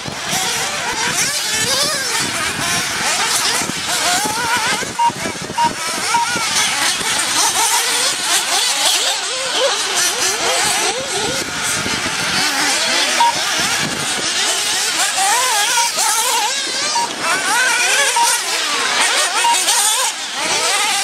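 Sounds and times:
model buggy engines whining: 0:00.0 - 0:21.0
short flat beep: 0:05.0 - 0:06.4, 0:13.2 - 0:13.4.

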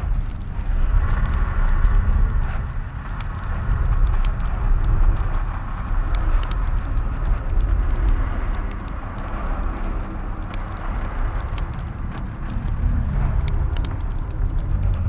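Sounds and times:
deep low drone: 0:00.0 - 0:15.0.

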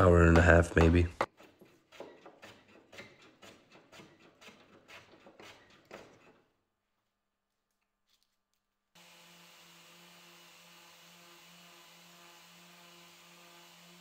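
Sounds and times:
edge tool scraping wood: 0:00.3 - 0:06.5.

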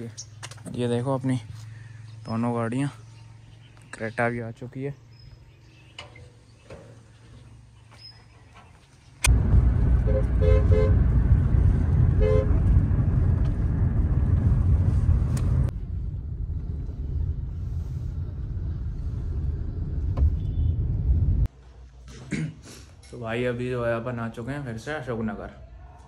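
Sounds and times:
road noise inside moving car: 0:09.3 - 0:21.5
car horn honks: 0:10.0 - 0:11.1, 0:12.1 - 0:12.7.

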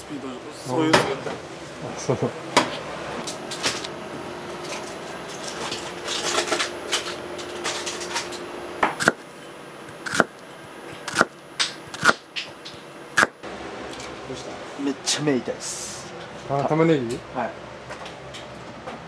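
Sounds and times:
knife chopping on cutting board: 0:08.9 - 0:09.2, 0:09.9 - 0:10.3, 0:11.0 - 0:11.3, 0:12.0 - 0:12.2.

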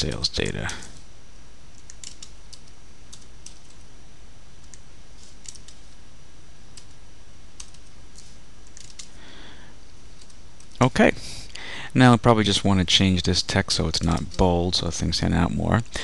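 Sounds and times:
steady low hum: 0:00.0 - 0:16.0
computer keyboard keystrokes: 0:01.7 - 0:03.9, 0:05.4 - 0:05.8, 0:07.6 - 0:09.1.

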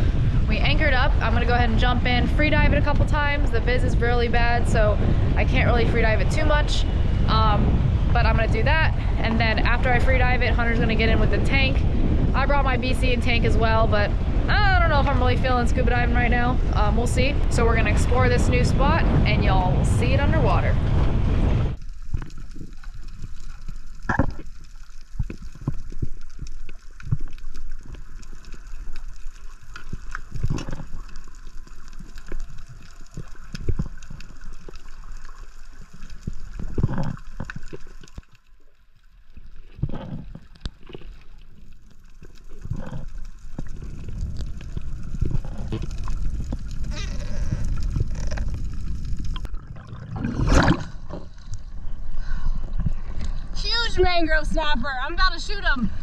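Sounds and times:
underwater gurgling and bubbling: 0:00.0 - 0:38.3, 0:39.3 - 0:53.5
underwater clicks and knocks: 0:22.0 - 0:28.1, 0:29.7 - 0:31.3, 0:32.0 - 0:34.8, 0:36.0 - 0:38.3, 0:39.7 - 0:51.7.

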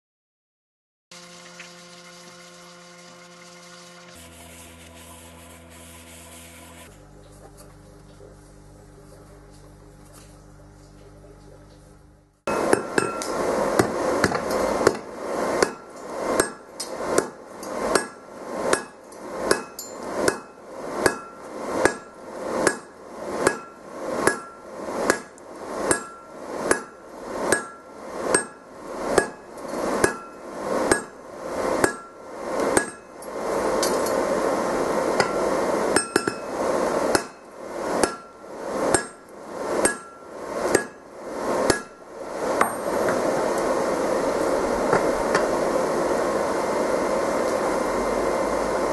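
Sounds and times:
steady rushing noise: 0:12.4 - 0:48.9
hammer striking steel on anvil: 0:12.5 - 0:31.2, 0:31.8 - 0:34.2, 0:35.1 - 0:41.0, 0:41.6 - 0:42.0, 0:42.6 - 0:43.2.

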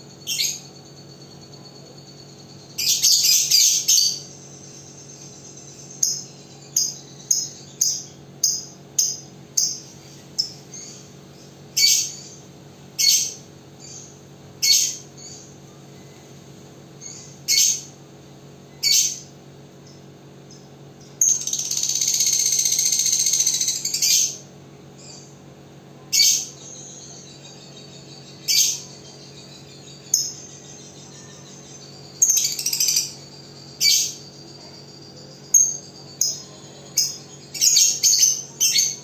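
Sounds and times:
lovebird chattering trill: 0:00.2 - 0:00.8, 0:02.6 - 0:12.4, 0:13.0 - 0:15.5, 0:17.0 - 0:17.9, 0:18.8 - 0:19.3, 0:21.2 - 0:24.4, 0:26.1 - 0:39.0.

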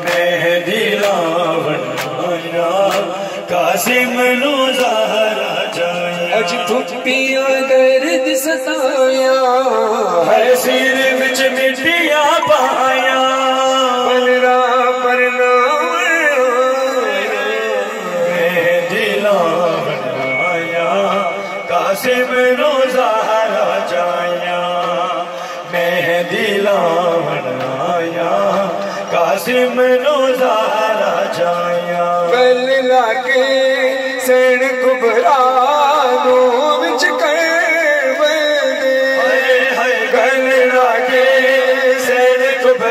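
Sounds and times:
man singing lament over loudspeaker: 0:00.0 - 0:42.9
steady held tone: 0:16.8 - 0:25.8.

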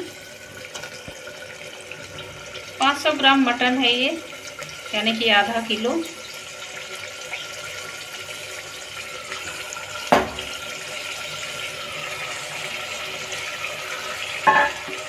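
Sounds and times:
meat sizzling in hot oil: 0:00.0 - 0:15.0
pot knocking: 0:10.1 - 0:10.5, 0:14.5 - 0:15.0.

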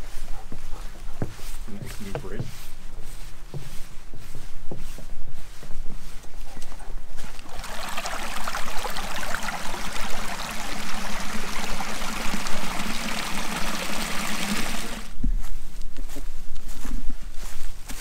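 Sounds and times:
brook trickling over rocks: 0:07.3 - 0:15.1.

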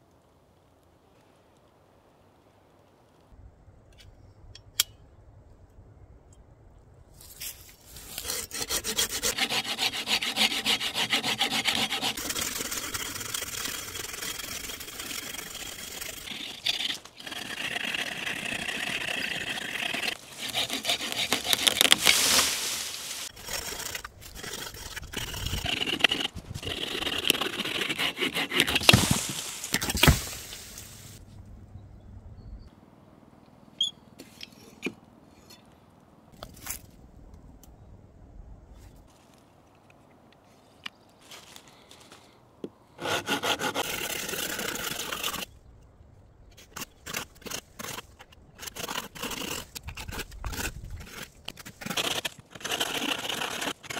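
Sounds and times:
saw cutting a branch: 0:08.0 - 0:31.0, 0:43.0 - 0:45.5, 0:46.6 - 0:53.9.

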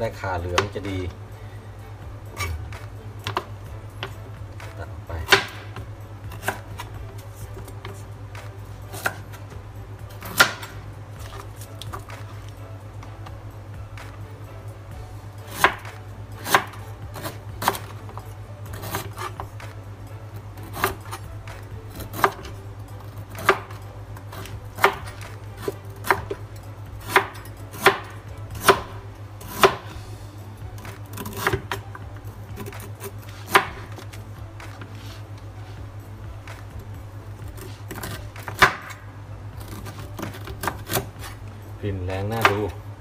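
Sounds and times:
knife chopping on plastic board: 0:02.4 - 0:09.3, 0:10.2 - 0:12.3, 0:15.5 - 0:19.7, 0:20.6 - 0:21.2, 0:23.2 - 0:26.4, 0:27.0 - 0:29.9, 0:30.8 - 0:31.9, 0:32.6 - 0:35.2, 0:37.6 - 0:39.0, 0:39.6 - 0:41.4.

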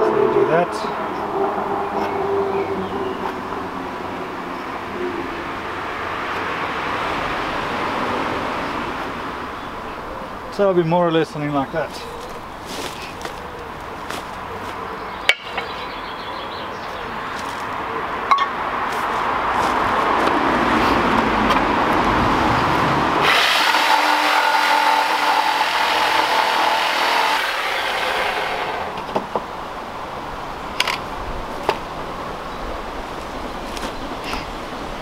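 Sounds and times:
power saw cutting wood: 0:23.2 - 0:29.1.

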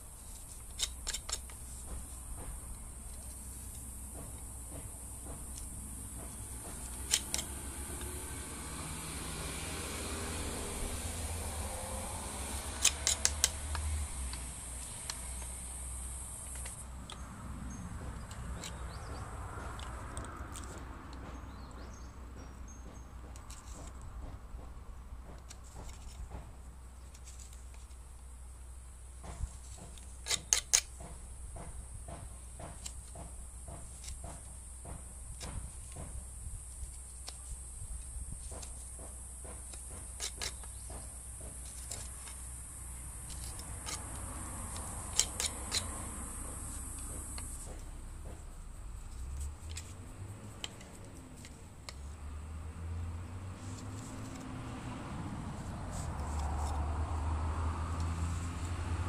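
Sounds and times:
knife carving wood: 0:00.0 - 0:52.6, 0:53.2 - 0:59.0
birds chirping: 0:17.1 - 0:19.7.

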